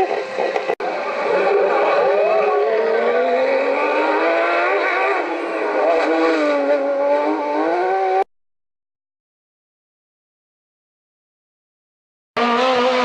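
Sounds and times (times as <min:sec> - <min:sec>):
rally car engine at full throttle: 0:00.0 - 0:08.3, 0:12.4 - 0:13.0.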